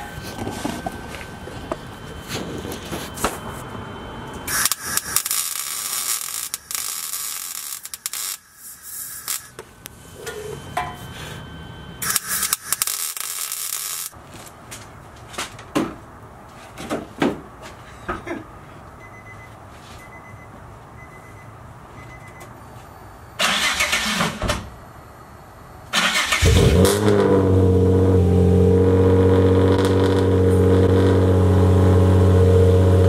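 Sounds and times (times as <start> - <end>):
welder crackling sizzle: 4.3 - 9.6, 12.0 - 14.2.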